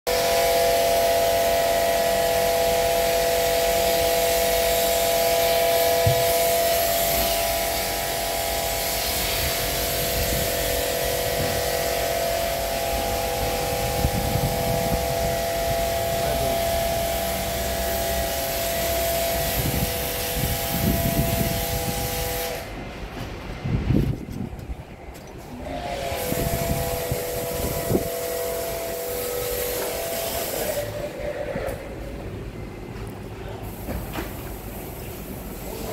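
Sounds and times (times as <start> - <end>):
machine whining: 0.1 - 33.3
spray lance hissing: 3.6 - 22.8, 25.7 - 31.2.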